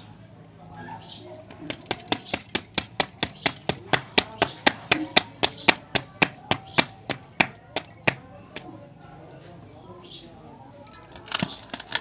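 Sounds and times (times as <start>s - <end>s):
bangles clinking: 1.5s - 9.6s
hands patting dough: 1.7s - 8.7s.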